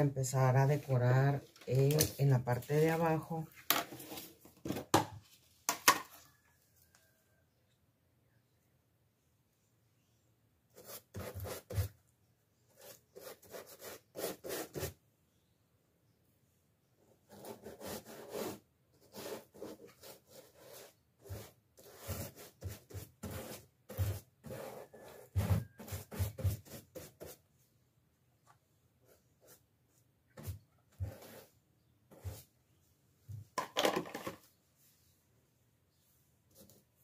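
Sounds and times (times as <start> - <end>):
brush scraping paste in tub: 17.3 - 27.4.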